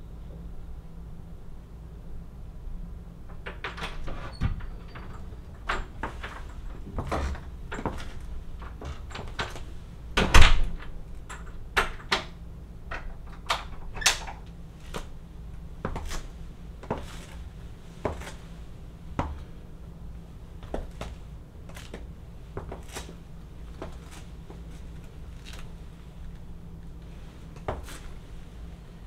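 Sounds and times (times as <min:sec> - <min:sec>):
heels clicking on wood floor: 0:15.8 - 0:17.4, 0:18.0 - 0:18.4, 0:20.6 - 0:25.7.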